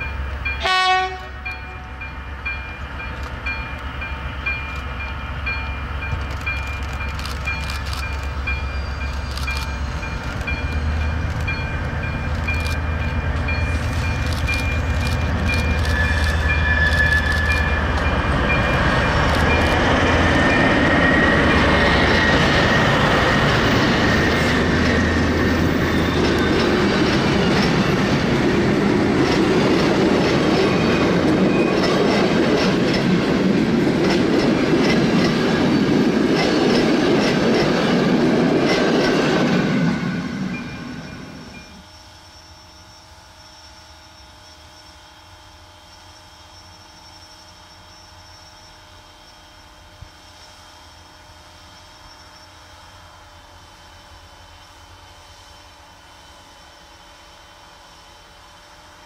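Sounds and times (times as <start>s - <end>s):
train wheels rolling: 0.0s - 42.3s
locomotive engine drone: 0.0s - 59.0s.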